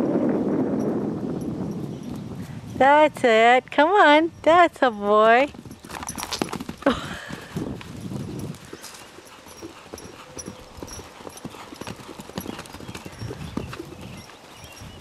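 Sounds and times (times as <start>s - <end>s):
horse hoofbeats on grass: 4.4s - 15.0s.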